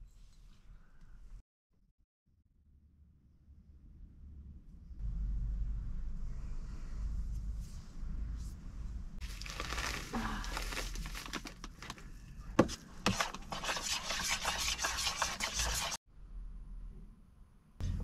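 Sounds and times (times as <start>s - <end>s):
utensil stirring batter in bowl: 13.1s - 16.0s.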